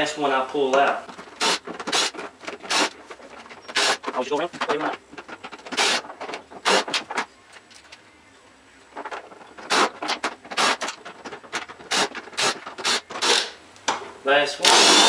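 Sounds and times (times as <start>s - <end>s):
power driver spinning bolts: 0.8s - 7.7s, 9.0s - 13.6s.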